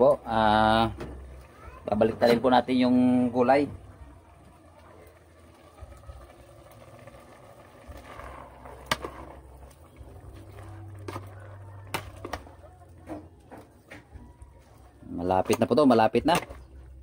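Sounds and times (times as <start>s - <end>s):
low steady rumble: 3.2s - 13.5s
metal ladle stirring in pot: 5.8s - 13.2s.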